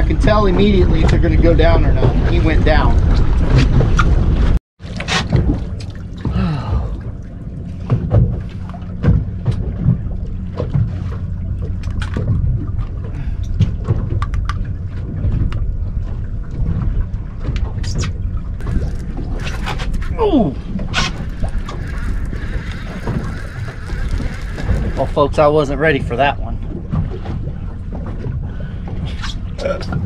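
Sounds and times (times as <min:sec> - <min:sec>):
wind on microphone: 0:12.2 - 0:30.0.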